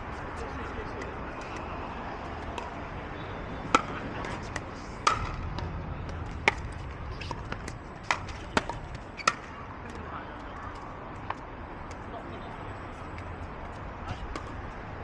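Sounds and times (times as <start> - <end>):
paddles hitting plastic ball: 3.7 - 10.0.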